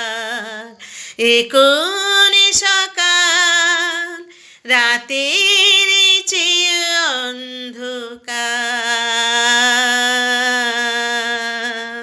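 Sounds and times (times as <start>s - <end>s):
woman singing unaccompanied: 0.0s - 12.0s
quick breath: 0.8s - 1.2s, 4.3s - 4.6s.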